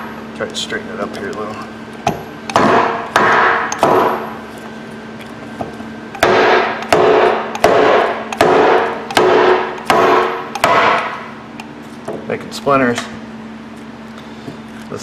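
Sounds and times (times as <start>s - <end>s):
hammer striking wooden block: 2.1s - 4.2s, 6.2s - 11.2s.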